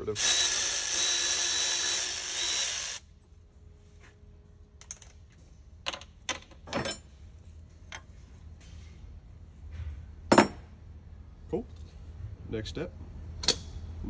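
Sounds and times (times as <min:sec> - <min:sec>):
electric ratchet whine: 0:00.0 - 0:03.0.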